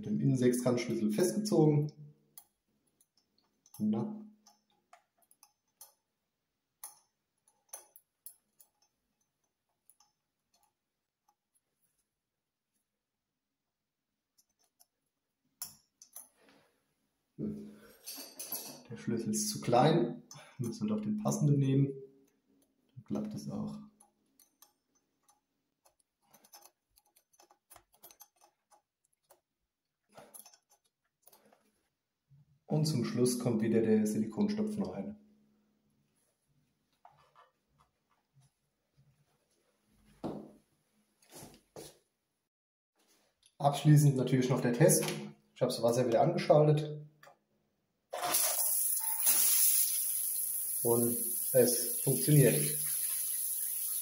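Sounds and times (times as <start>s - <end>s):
hex key clicking and scraping: 24.0s - 29.4s, 30.1s - 31.6s.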